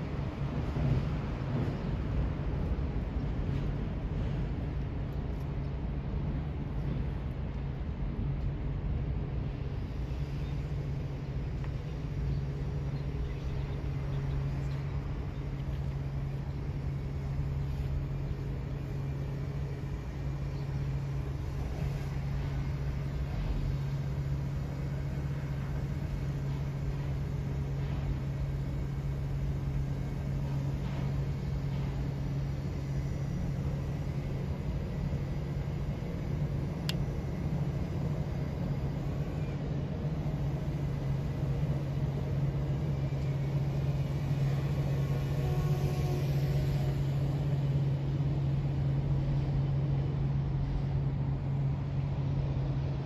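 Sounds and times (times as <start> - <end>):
ship diesel engines humming: 0.0 - 53.0.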